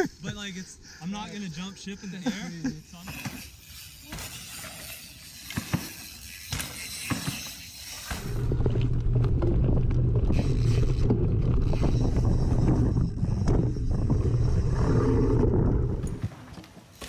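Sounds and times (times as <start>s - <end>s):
bike tyres hissing on dirt: 2.8s - 8.7s
bike knocks and clicks: 3.0s - 8.4s.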